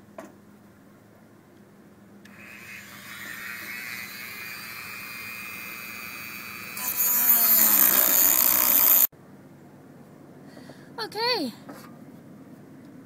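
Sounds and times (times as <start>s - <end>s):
rotary tool grinding cut: 2.3s - 9.1s
rotary tool whining: 2.3s - 9.1s.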